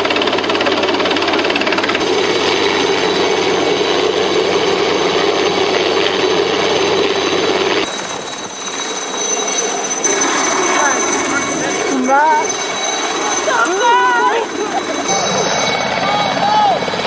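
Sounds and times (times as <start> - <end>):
helicopter rotor chopping: 0.0 - 17.0
faint high whine: 7.8 - 16.9.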